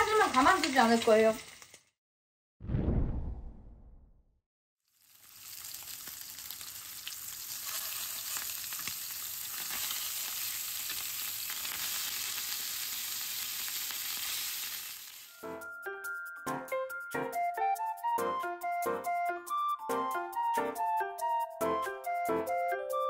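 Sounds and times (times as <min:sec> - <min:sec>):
pork sizzling in frying pan: 0:00.0 - 0:01.9, 0:04.9 - 0:15.3
light music with plucked notes: 0:15.4 - 0:23.0.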